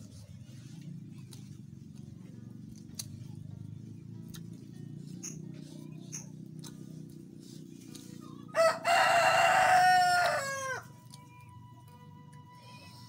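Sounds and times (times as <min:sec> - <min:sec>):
rooster crowing: 0:08.5 - 0:11.0.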